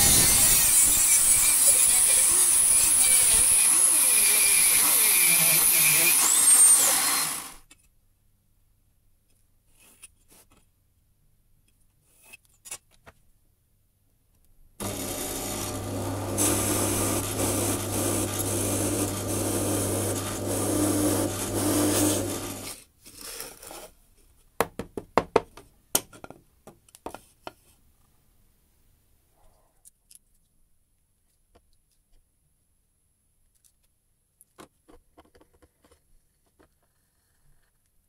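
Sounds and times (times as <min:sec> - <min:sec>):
drill press boring wood: 0:00.0 - 0:07.6, 0:14.8 - 0:22.8.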